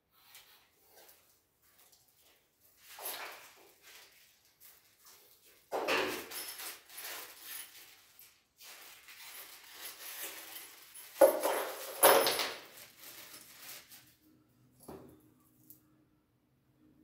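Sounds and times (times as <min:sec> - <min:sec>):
plastic bag rustling: 0:02.8 - 0:14.2.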